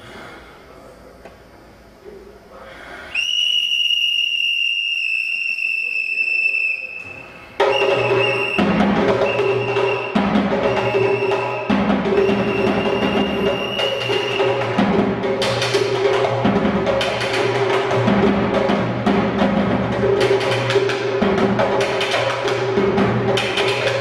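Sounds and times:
high whistle-like tone: 3.2s - 14.7s
bass drum and tom drumming: 7.6s - 24.0s
short high tones: 9.2s - 14.6s.

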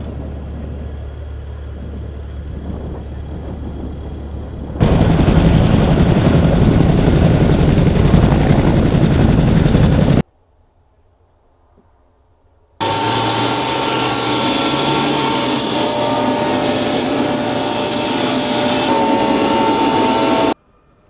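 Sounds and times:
helicopter rotor and engine: 0.0s - 10.2s, 12.8s - 20.6s
low rumble: 0.0s - 10.2s.

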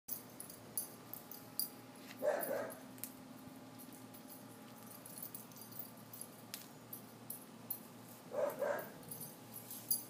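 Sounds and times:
puppy barking: 2.2s - 2.8s, 8.3s - 9.0s.

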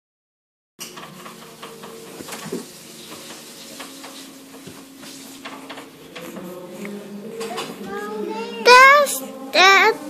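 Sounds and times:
steady hiss: 1.2s - 8.3s
children making low held tones: 7.4s - 10.0s.

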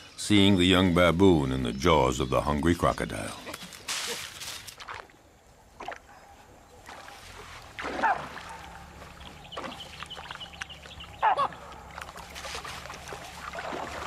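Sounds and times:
water splashing and sloshing: 3.7s - 14.0s.

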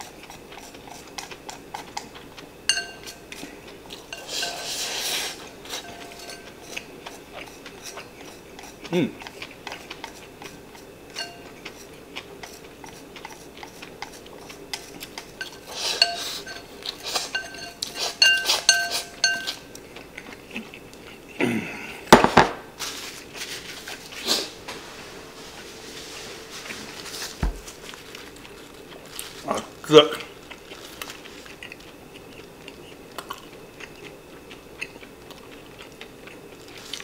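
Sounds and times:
ringing taps on bowl: 2.7s - 3.1s, 11.2s - 11.5s, 17.4s - 19.6s
chopsticks scraping ceramic bowl: 4.0s - 19.7s.

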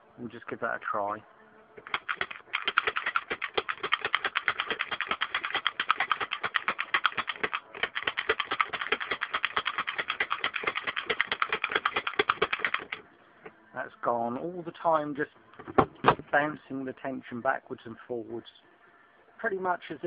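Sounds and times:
pick gun rapid clicking: 1.8s - 13.0s.

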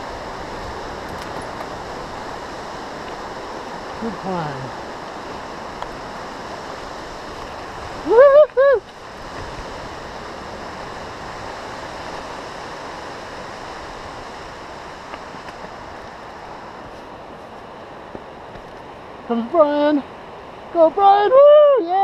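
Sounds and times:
steady rushing noise: 0.0s - 22.0s
person whooping cheer: 8.0s - 8.8s.

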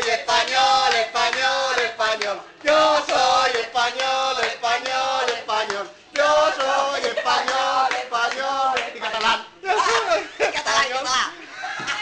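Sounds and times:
group of voices chanting: 0.0s - 9.4s.

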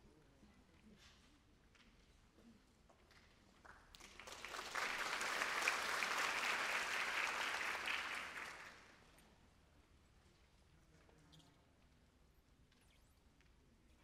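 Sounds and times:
audience applauding: 3.9s - 8.9s.

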